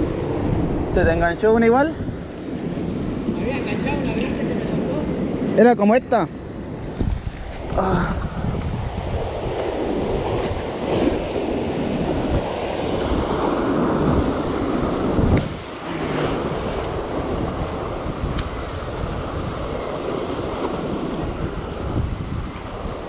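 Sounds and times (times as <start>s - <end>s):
wind buffeting microphone: 0.0s - 5.6s, 6.2s - 23.0s
surf breaking over rocks: 6.7s - 23.0s.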